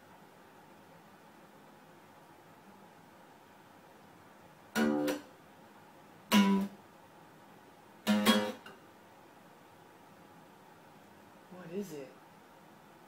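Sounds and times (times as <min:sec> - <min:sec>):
toy playing strummed guitar: 0:04.7 - 0:05.3, 0:06.3 - 0:06.8, 0:08.0 - 0:08.8.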